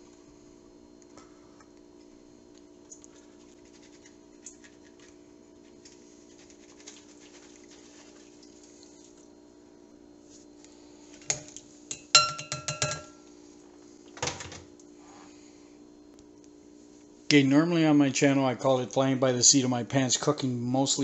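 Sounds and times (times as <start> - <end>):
low steady hum: 0.0 - 21.0
water draining in a colander: 6.8 - 9.3.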